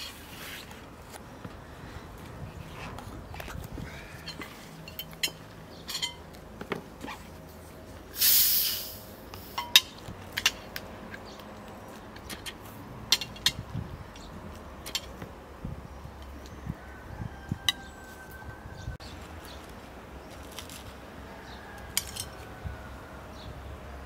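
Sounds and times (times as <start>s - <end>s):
cutlery clinking on plates: 4.3s - 6.2s, 21.9s - 22.4s
gas hissing from bottle: 8.2s - 9.6s.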